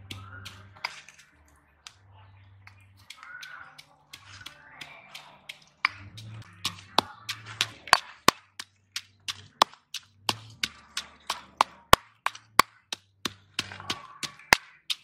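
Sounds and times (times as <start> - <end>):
pestle pounding in stone mortar: 5.5 - 15.0.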